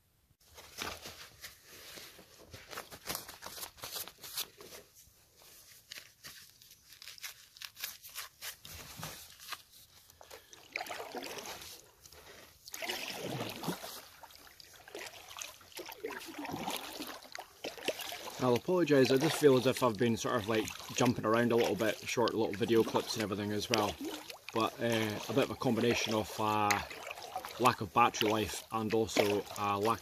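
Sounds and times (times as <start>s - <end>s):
kayak paddle splashing water: 10.3s - 30.0s
water dripping: 10.5s - 30.0s.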